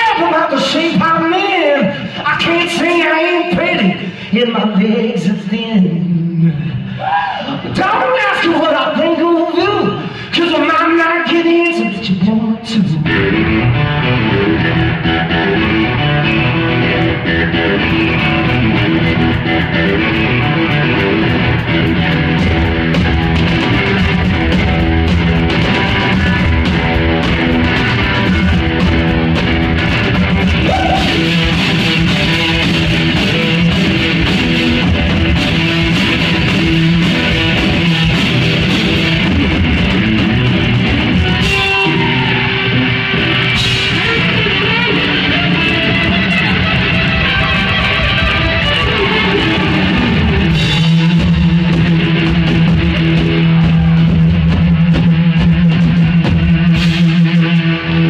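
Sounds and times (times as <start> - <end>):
electric guitar: 0.0 - 58.0
drum kit: 13.0 - 58.0.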